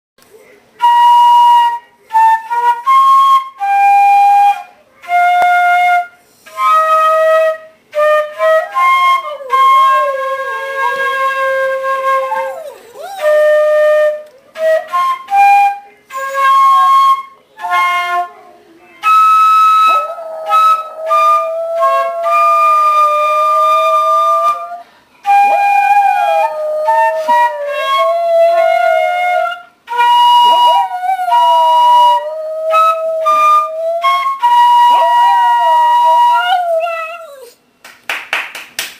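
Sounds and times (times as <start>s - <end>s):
flute playing held notes: 0.8s - 37.5s
dog howling: 8.5s - 14.7s, 16.1s - 24.8s, 25.4s - 29.6s, 30.4s - 37.6s.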